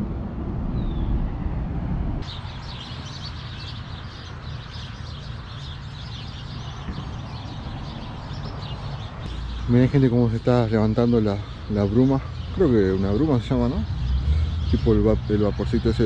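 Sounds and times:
birds chirping and singing: 2.2 - 16.0.

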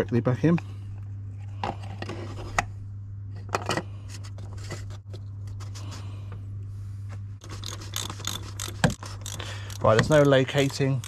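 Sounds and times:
metal tools clinking: 7.6 - 11.0.

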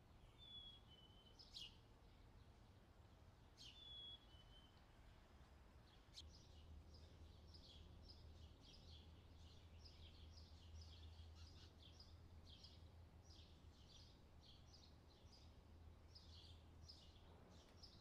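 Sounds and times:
faint bird chirping: 0.2 - 2.8, 3.5 - 5.0, 5.9 - 18.0.

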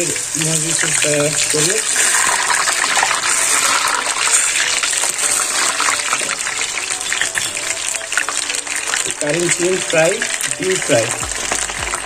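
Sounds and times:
fritters deep-frying in oil: 0.0 - 12.0.

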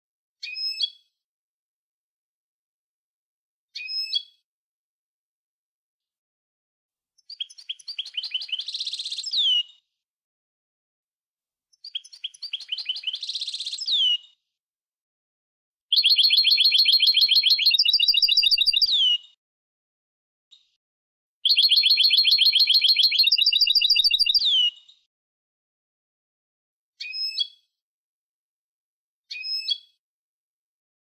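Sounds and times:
goldfinch singing trills: 15.9 - 19.2, 21.5 - 24.7.

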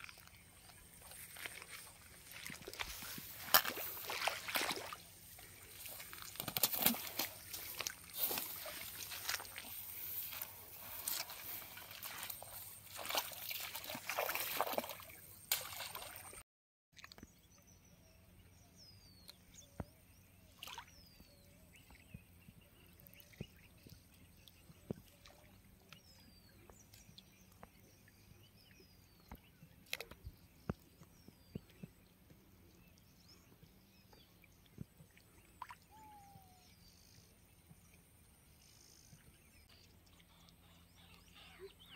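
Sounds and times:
footsteps splashing through wet grass: 0.0 - 16.4.

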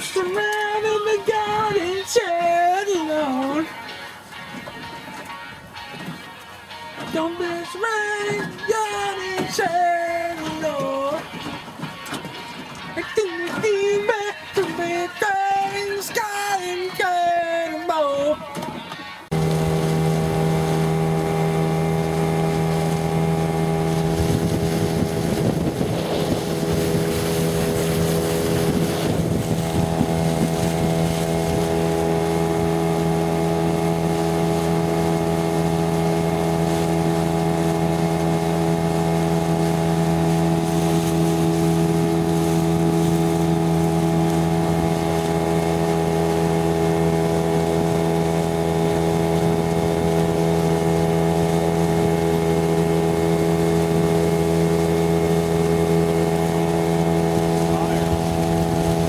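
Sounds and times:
motorboat engine running: 0.0 - 59.0
wind rushing over microphone: 20.2 - 32.8, 56.8 - 59.0.

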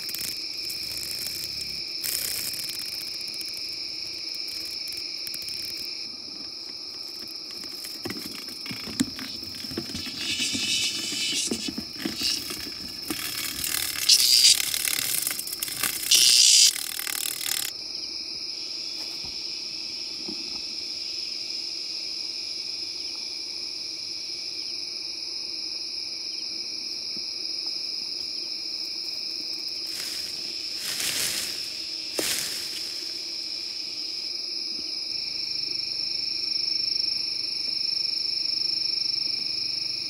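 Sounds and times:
insect chorus chirring trill: 0.0 - 40.0
rough rasping noise: 8.7 - 17.7.

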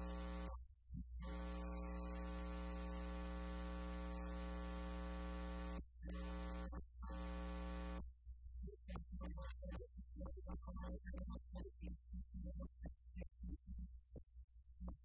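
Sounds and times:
electrical mains hum: 0.0 - 0.6, 1.2 - 5.8.

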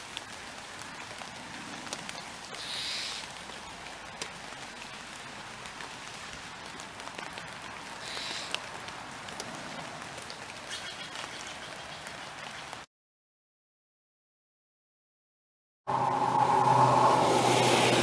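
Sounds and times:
raindrops ticking: 0.0 - 12.8
heavy rain on leaves: 0.0 - 12.9, 16.2 - 18.0.

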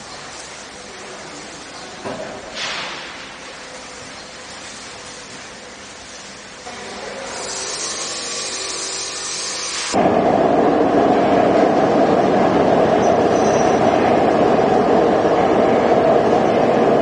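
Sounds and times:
factory machinery hissing: 0.0 - 17.0
rumbling machine noise: 7.6 - 17.0.

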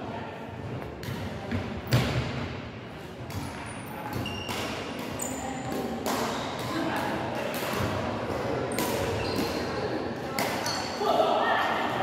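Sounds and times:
rackets hitting shuttlecock: 10.3 - 11.0.

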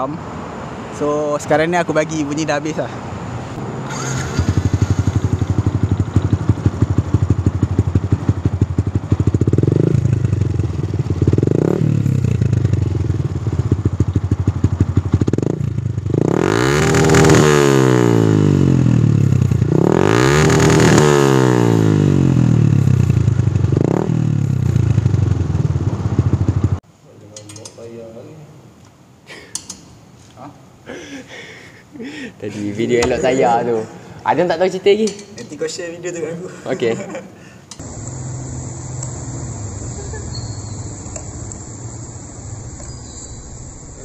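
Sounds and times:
motorcycle engine idling and revving: 3.4 - 26.8, 37.8 - 44.0.

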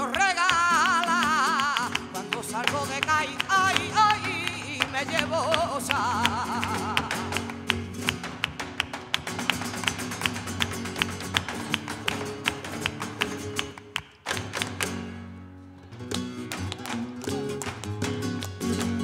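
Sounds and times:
person singing: 0.0 - 7.5
hand-clapping: 0.0 - 15.2, 16.0 - 19.0
flamenco guitar: 0.0 - 19.0
shoes striking stage floor: 7.1 - 15.2, 16.0 - 19.0.

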